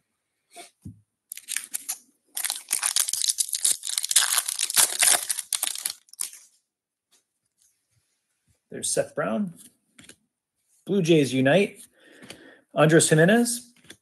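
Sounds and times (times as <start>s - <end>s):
foil wrapper tearing and crinkling: 1.3s - 6.4s.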